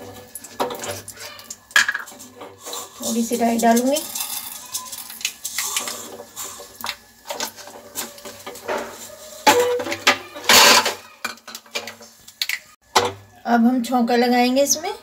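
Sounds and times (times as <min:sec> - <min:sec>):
seeds popping in hot oil: 0:00.0 - 0:07.6
small bowls clinking: 0:00.0 - 0:12.7.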